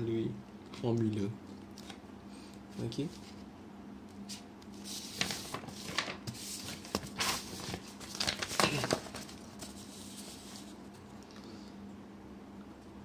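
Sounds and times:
faint steady hum: 0.0 - 13.0
paper rustling and crinkling: 4.3 - 10.8.

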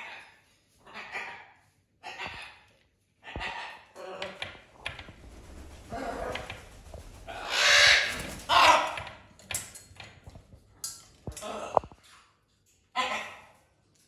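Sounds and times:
parrot squawking: 7.3 - 9.0.

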